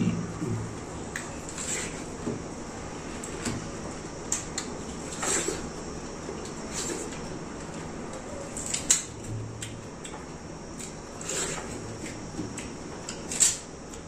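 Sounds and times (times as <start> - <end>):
sharp clacks of rinds: 10.8 - 14.0.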